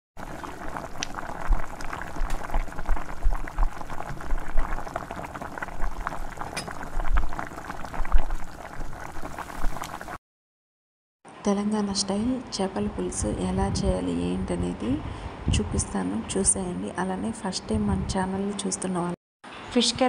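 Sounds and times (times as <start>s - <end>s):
curry bubbling in a pot: 0.2s - 10.2s.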